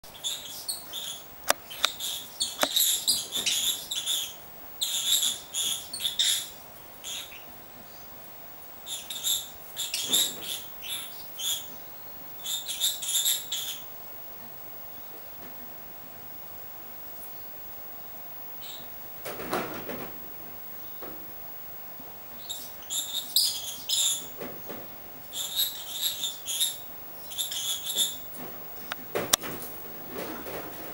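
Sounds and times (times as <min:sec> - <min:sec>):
lovebird squeaky chirps: 0:00.1 - 0:07.4, 0:22.4 - 0:24.2, 0:25.3 - 0:28.2.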